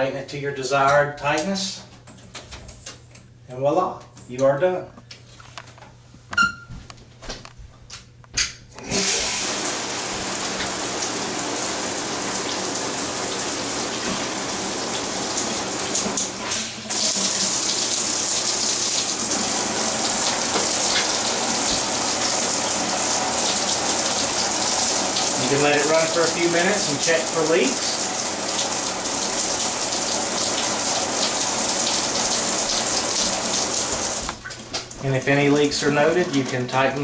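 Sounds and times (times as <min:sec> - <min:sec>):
shower head spraying: 0:08.9 - 0:34.2.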